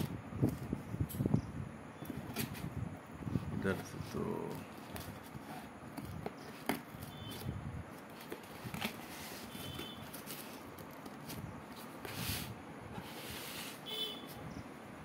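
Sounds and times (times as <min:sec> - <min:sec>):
box scraping on table: 0:12.1 - 0:13.8.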